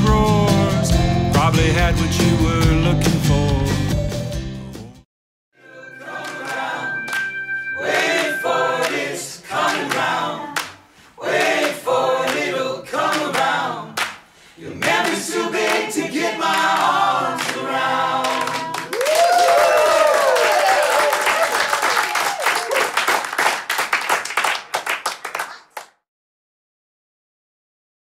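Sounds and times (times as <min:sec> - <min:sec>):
people cheering: 0:05.6 - 0:10.6, 0:16.6 - 0:25.8
group of voices singing: 0:05.6 - 0:18.9
hand claps: 0:06.1 - 0:10.8, 0:11.4 - 0:14.2, 0:14.8 - 0:15.9, 0:16.5 - 0:17.6, 0:18.2 - 0:26.0.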